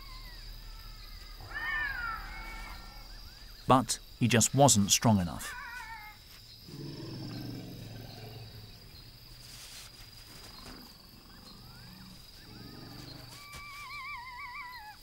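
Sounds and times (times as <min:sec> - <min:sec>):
high insect trill: 0:00.0 - 0:15.0
elephant rumbling call: 0:06.7 - 0:09.2.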